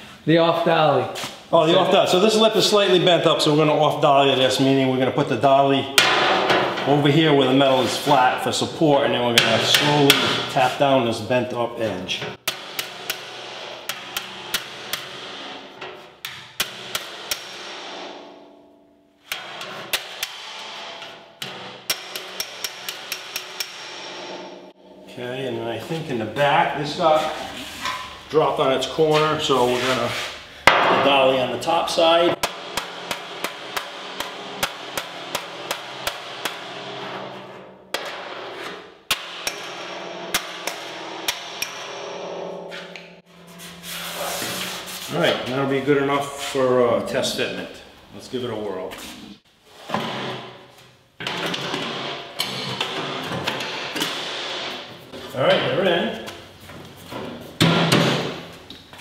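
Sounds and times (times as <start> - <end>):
hammer tapping sheet metal: 5.9 - 8.2, 9.3 - 10.9, 12.2 - 25.1, 30.7 - 45.8.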